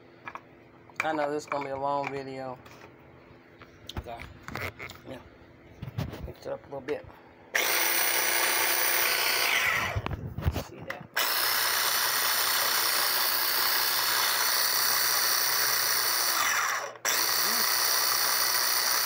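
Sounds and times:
food processor motor running: 7.6 - 10.1, 11.2 - 19.0.

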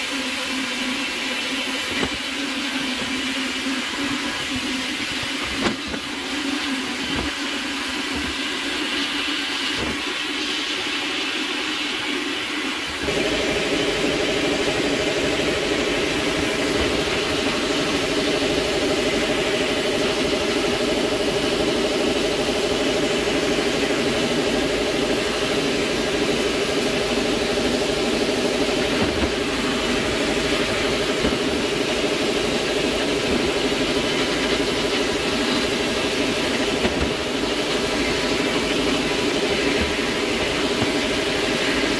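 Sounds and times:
machine hum: 0.0 - 10.6, 12.0 - 41.9
blast gun spraying hiss: 23.9 - 41.9.

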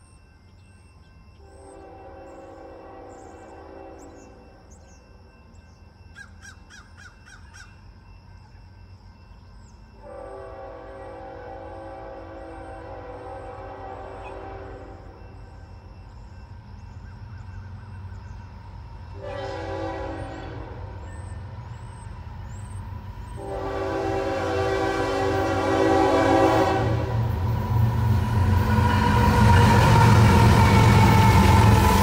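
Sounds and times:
locomotive air horn blasts: 1.4 - 4.6, 10.0 - 15.2, 19.2 - 21.0, 23.4 - 27.6
locomotive engine rumble: 8.0 - 32.0.

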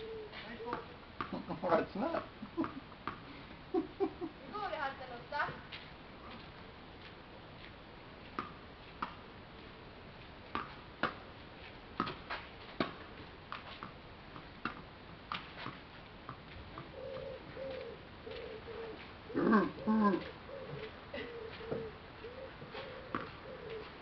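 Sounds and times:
bird cooing: 0.0 - 1.6, 16.8 - 24.0
tennis ball bouncing and struck: 8.4 - 9.2, 10.5 - 11.2, 12.0 - 14.0, 14.6 - 16.9, 23.1 - 23.4.

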